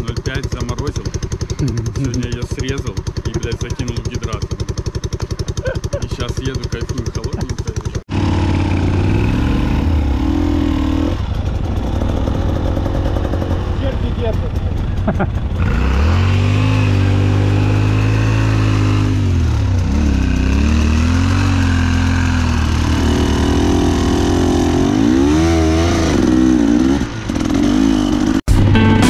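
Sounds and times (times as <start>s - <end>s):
motorcycle engine revving: 0.0s - 29.0s
music: 28.5s - 29.0s.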